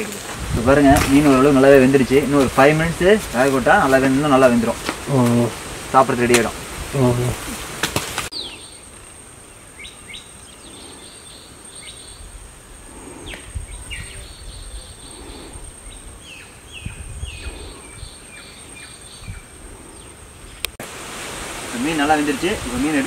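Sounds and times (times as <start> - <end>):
low wind rumble: 0.0 - 23.0
birds whistling: 8.3 - 8.8, 9.8 - 20.6.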